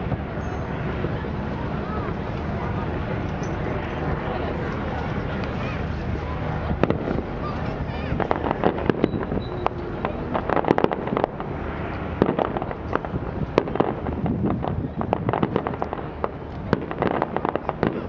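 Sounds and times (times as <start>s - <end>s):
fireworks popping and banging: 6.7s - 18.0s.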